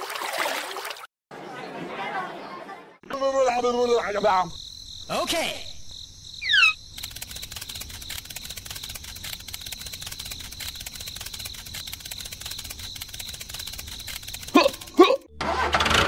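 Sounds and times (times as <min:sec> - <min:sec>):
crickets chirring: 0:03.2 - 0:15.0
quick falling chirps: 0:06.4 - 0:15.1.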